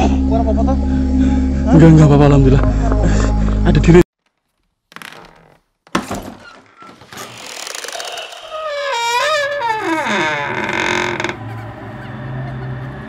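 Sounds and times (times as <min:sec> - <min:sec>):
wooden door creaking open: 0:04.3 - 0:11.5.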